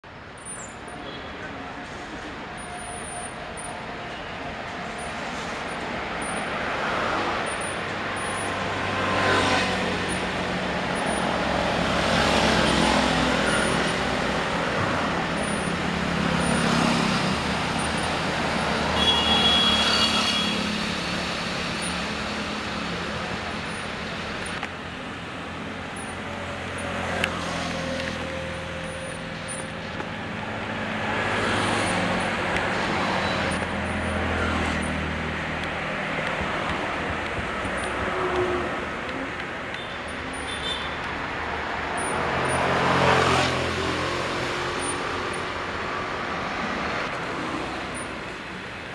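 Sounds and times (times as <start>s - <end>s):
road traffic: 0.0s - 48.9s
vehicles passing: 0.0s - 48.9s.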